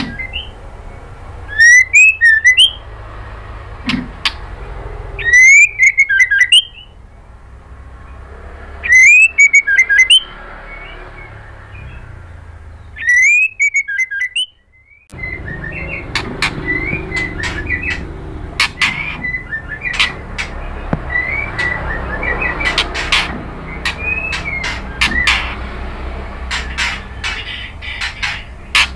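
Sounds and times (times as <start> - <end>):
bird whistling and chirping: 0.0 - 0.6, 1.5 - 2.8, 5.2 - 7.0, 8.8 - 25.6.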